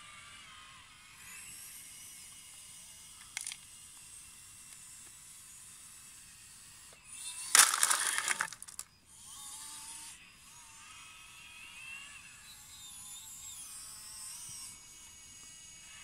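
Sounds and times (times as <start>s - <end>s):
small electric motors whining: 0.0s - 16.0s
gravel rattling into truck bed: 7.6s - 8.8s.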